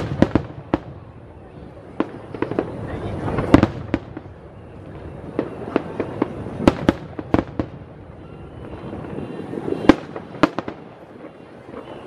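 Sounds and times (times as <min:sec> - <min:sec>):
fireworks bangs: 0:00.0 - 0:12.0
fireworks rumble: 0:00.0 - 0:12.0.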